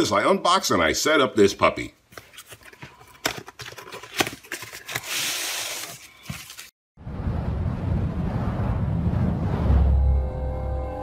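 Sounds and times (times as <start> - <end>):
cardboard scraping slide: 4.2 - 6.7.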